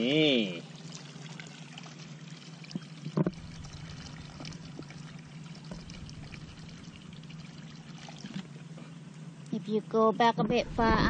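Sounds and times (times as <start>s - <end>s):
water trickling and pouring: 0.6s - 8.6s
knocks or splashes: 2.7s - 8.5s.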